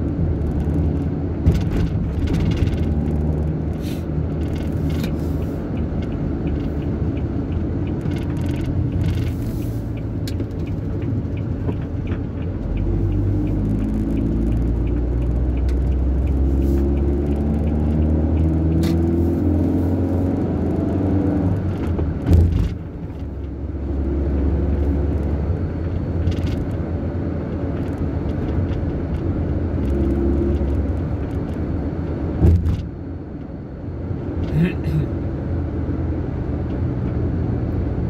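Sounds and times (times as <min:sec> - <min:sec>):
car engine: 0:00.0 - 0:38.0
road noise: 0:00.0 - 0:38.0
thump: 0:32.4 - 0:32.9.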